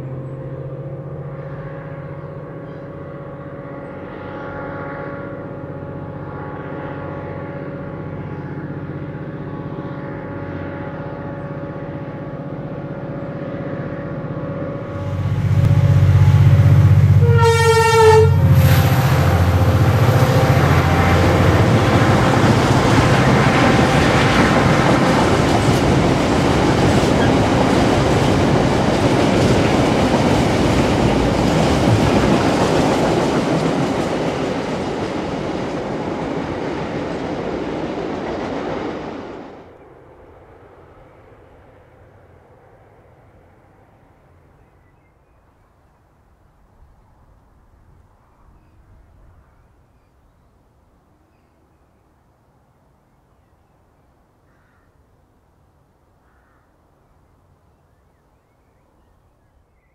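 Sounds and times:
train horn blast: 0:00.0 - 0:26.0
diesel locomotive engine: 0:00.0 - 0:49.9.

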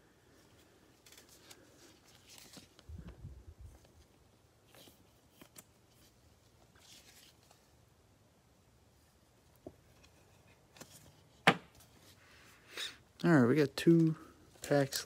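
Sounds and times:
gloved hands rustling card: 0:00.4 - 0:07.9.

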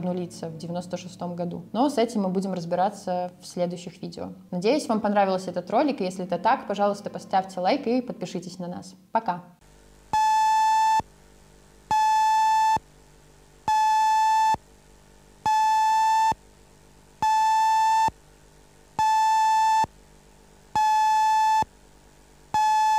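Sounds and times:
single-pitched beep: 0:11.9 - 0:12.8, 0:17.2 - 0:18.1, 0:19.0 - 0:19.9, 0:20.8 - 0:21.7, 0:22.6 - 0:22.9.

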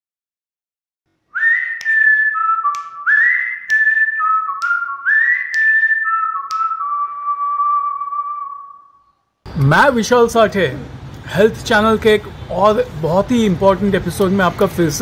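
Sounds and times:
whistled tune: 0:01.3 - 0:09.3
sharp clicks: 0:04.6 - 0:04.8, 0:06.5 - 0:06.8.

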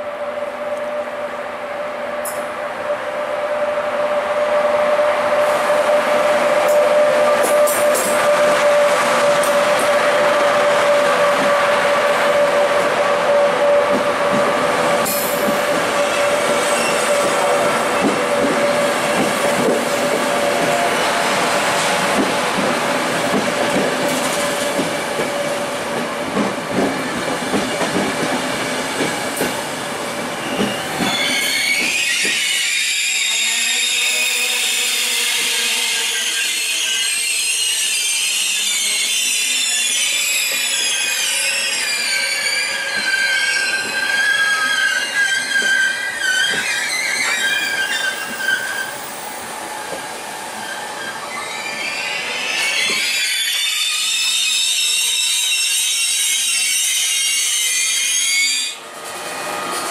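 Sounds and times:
train coaches rumbling past: 0:00.0 - 0:59.9
high wavering wheel squeal: 0:15.0 - 0:19.4, 0:30.4 - 0:49.3, 0:50.6 - 0:58.8.

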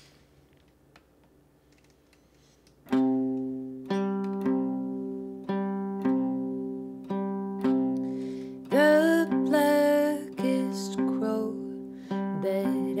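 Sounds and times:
archtop guitar chord strummed: 0:02.9 - 0:13.0.

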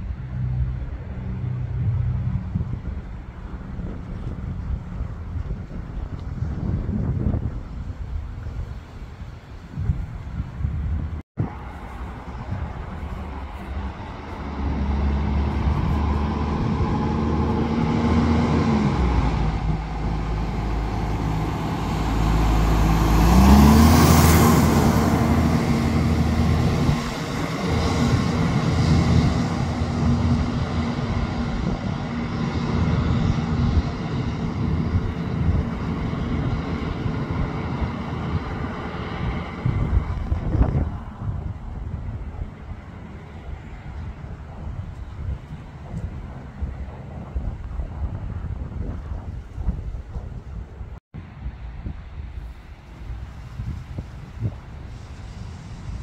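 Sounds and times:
road noise: 0:00.0 - 0:56.0
truck diesel engine driving past: 0:11.4 - 0:41.6.

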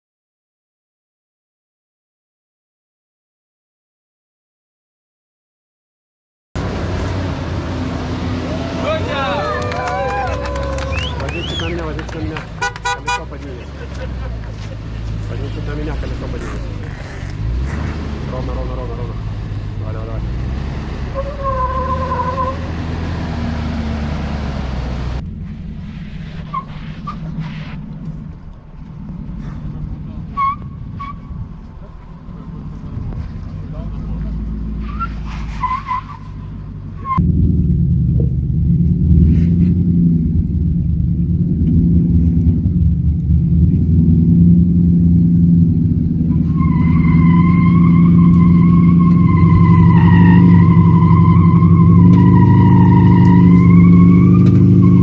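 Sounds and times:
low engine rumble: 0:06.6 - 0:55.0
suv engine under load: 0:06.6 - 0:55.0
wind noise on microphone: 0:25.3 - 0:33.6.

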